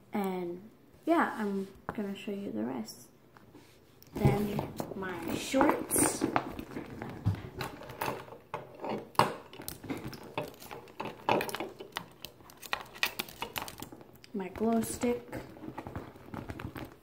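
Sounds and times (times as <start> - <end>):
plastic bag rustling: 4.2 - 8.5, 9.6 - 17.0
small clicks and knocks: 5.6 - 14.8.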